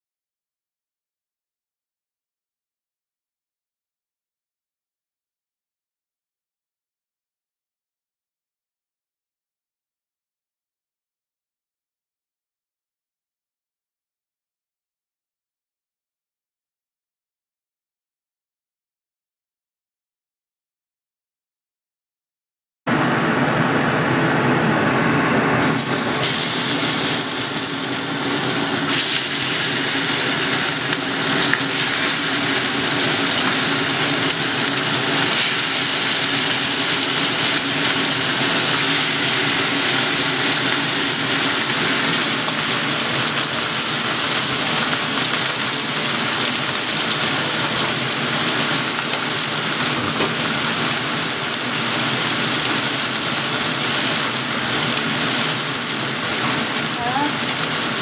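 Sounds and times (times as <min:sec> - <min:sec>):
meat sizzling in a wok: 0:25.6 - 0:58.0.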